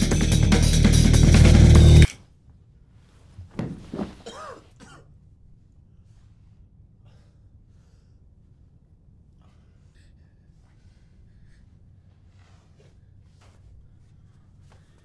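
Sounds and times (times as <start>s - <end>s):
loud drum-driven music: 0.0s - 2.1s
man coughing and groaning: 4.2s - 5.1s.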